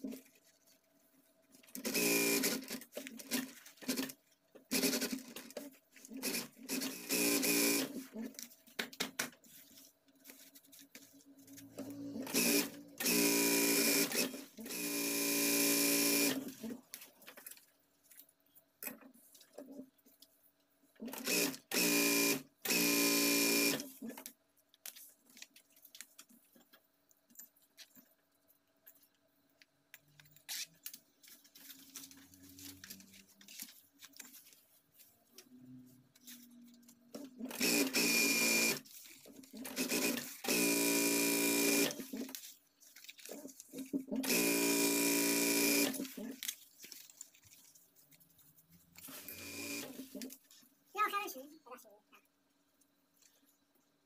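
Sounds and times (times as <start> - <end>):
sewing machine stitching: 1.8 - 8.3, 11.7 - 16.8, 21.0 - 24.2, 37.2 - 42.3, 43.7 - 46.4, 49.0 - 50.3.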